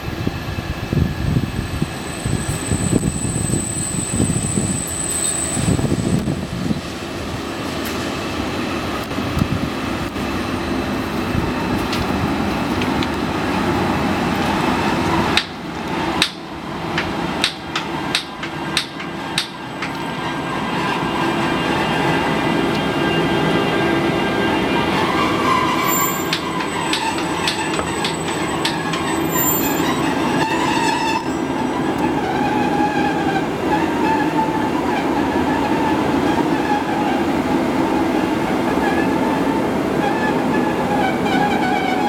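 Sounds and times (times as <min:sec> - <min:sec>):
electric locomotive rolling: 0:00.0 - 0:42.0
wheels clicking over rail joints: 0:11.3 - 0:21.3, 0:24.8 - 0:39.4.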